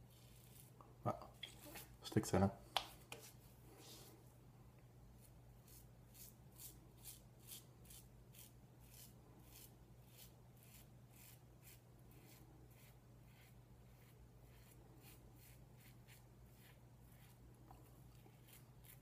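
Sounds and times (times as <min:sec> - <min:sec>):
razor scraping stubble: 0:05.6 - 0:19.0.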